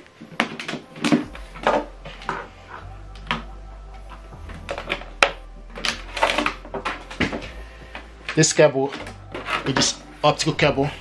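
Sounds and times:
low rumble: 0:01.2 - 0:08.4
cable handling clicks and knocks: 0:04.4 - 0:10.1.

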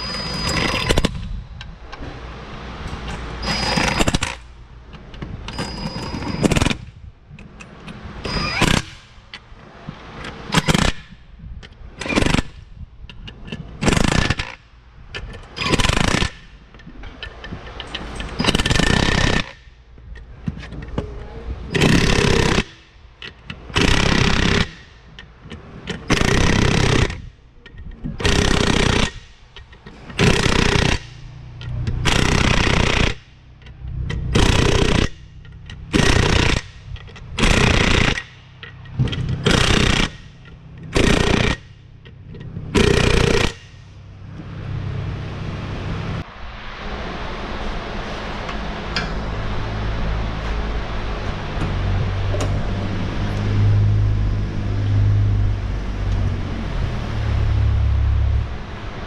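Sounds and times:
cordless power tool bursts: 0:28.2 - 0:29.3, 0:30.2 - 0:31.2.

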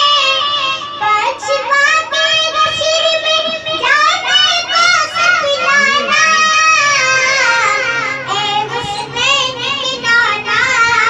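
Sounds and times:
boy singing into a microphone: 0:00.0 - 0:11.0.

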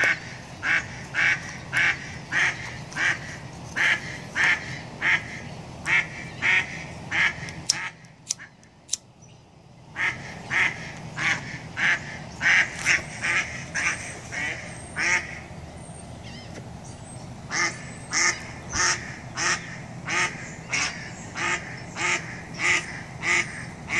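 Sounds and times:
duck quacking: 0:00.0 - 0:08.5, 0:10.0 - 0:15.5, 0:17.5 - 0:23.9
sharp clicks: 0:07.4 - 0:09.1.

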